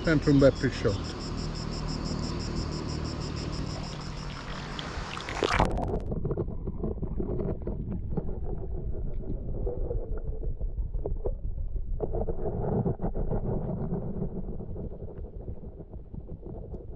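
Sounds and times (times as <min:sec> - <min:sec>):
underwater water rumble: 0:01.6 - 0:16.9
splash into river: 0:03.7 - 0:05.8.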